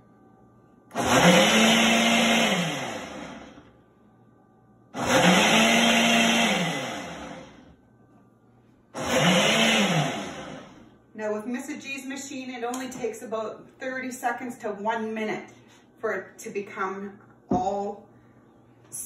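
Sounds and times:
blender motor pulsing: 0.9s - 3.6s, 5.0s - 7.7s, 9.0s - 10.8s.

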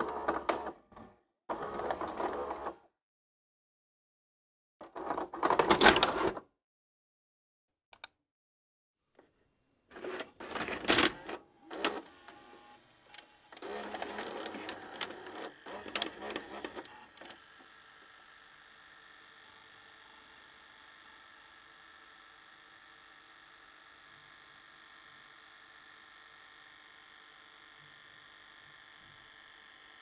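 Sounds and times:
clunks and whirring: 0.0s - 2.8s, 9.9s - 17.6s
sharp click: 7.9s - 8.2s.

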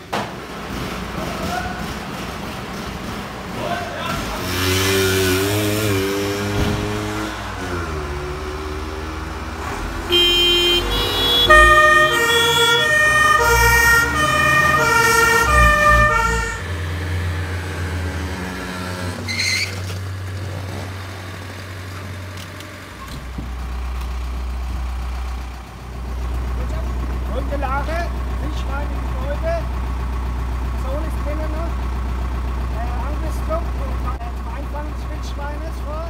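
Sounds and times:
truck engine running: 0.0s - 36.0s
fire engine two-tone siren: 10.0s - 17.7s.

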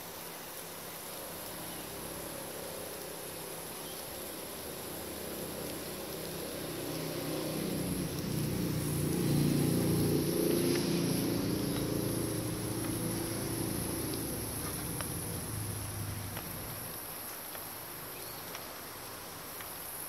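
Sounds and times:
steady high hiss: 0.0s - 20.0s
low engine rumble: 5.2s - 17.0s.

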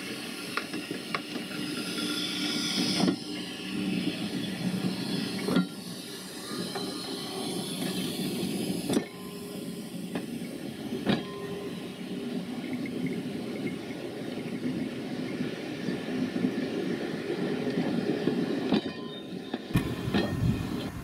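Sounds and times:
steam hissing: 0.0s - 13.8s
train wheels rumbling on rails: 0.0s - 21.0s
wheels knocking on rail joints: 17.7s - 21.0s.

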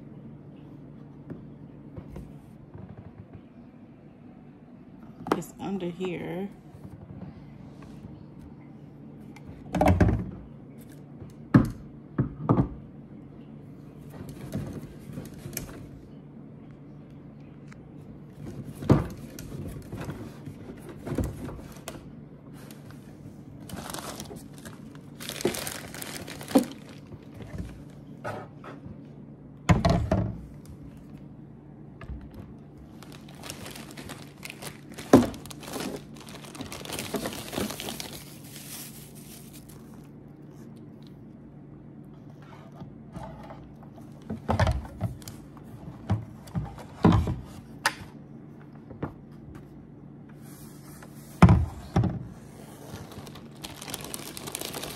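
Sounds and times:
low steady hum: 0.0s - 54.9s
plastic packaging crinkling: 23.6s - 28.0s, 32.8s - 40.2s, 52.8s - 54.9s.

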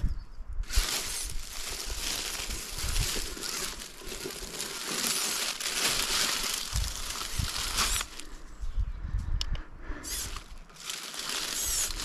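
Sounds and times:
dry leaves crunching: 0.6s - 8.4s, 10.1s - 12.0s.

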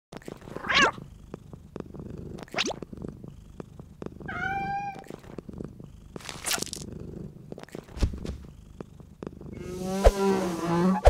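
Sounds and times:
cat purring: 0.2s - 10.8s
cat meowing: 0.6s - 1.0s, 4.3s - 5.1s.

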